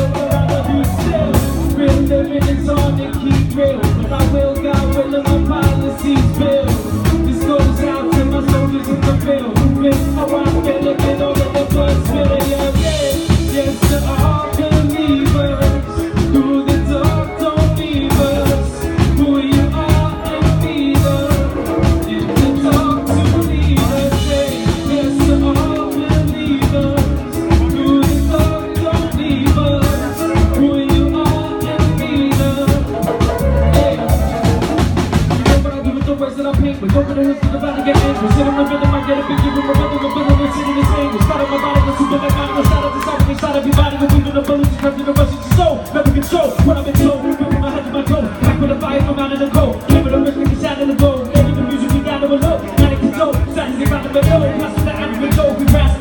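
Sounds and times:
electric guitars: 0.0s - 35.9s
drum kit beat: 0.0s - 56.0s
live band playing: 0.0s - 56.0s.

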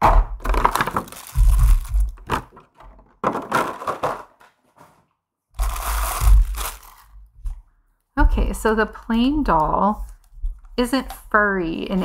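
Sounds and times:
dull bumps: 0.0s - 4.2s
packaging crinkling and rustling: 0.4s - 4.2s, 5.6s - 7.5s.

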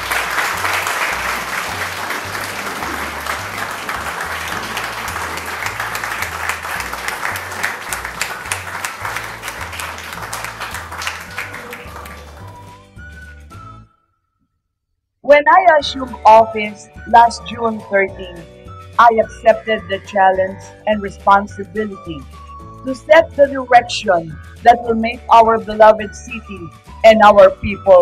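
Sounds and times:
music with stepping bass line: 0.0s - 12.6s
crowd applauding: 0.0s - 12.9s.

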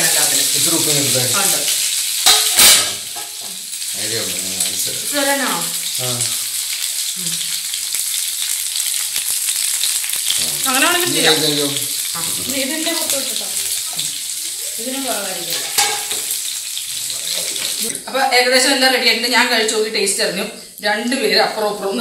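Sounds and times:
food sizzling in hot oil: 0.0s - 22.0s
people's voices: 10.4s - 13.6s.

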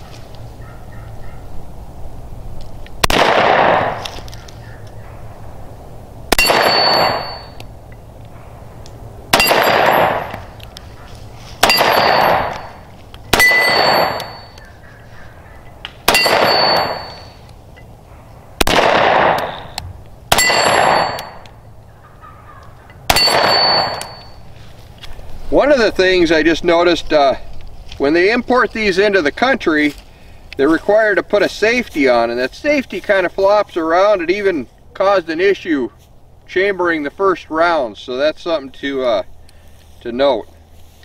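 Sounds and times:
pistol shots with echo: 3.0s - 4.0s, 6.3s - 7.6s, 9.3s - 10.5s, 11.6s - 14.6s, 16.0s - 17.3s, 18.6s - 21.4s, 23.1s - 24.3s.

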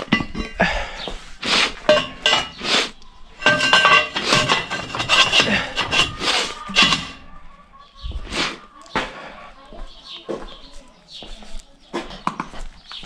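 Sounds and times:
steel frame clanking and scraping: 0.0s - 0.7s, 1.7s - 7.4s.

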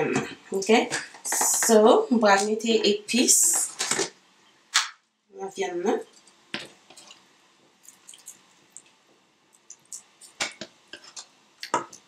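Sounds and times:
wet squishes of paste on meat: 7.8s - 10.4s.

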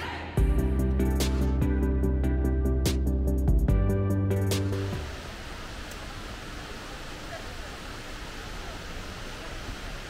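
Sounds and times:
background music sustained notes: 0.1s - 5.2s
steady background noise: 4.8s - 10.0s.

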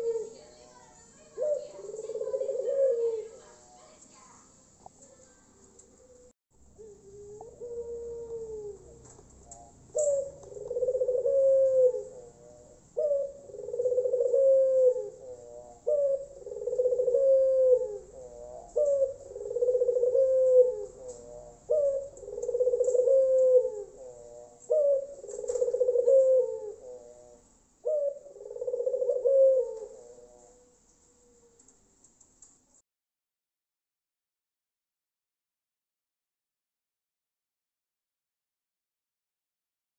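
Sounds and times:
dove cooing: 0.0s - 0.6s, 1.2s - 3.8s, 5.6s - 31.8s.

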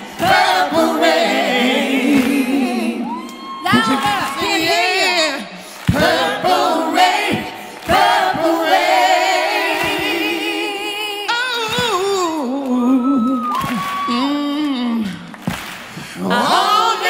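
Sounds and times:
choir singing wordless notes: 0.0s - 11.6s, 16.2s - 17.0s.

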